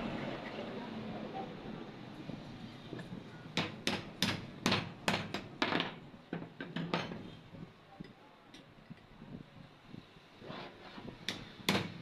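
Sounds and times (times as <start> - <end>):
hammer tapping on metal tube: 3.6 - 5.5.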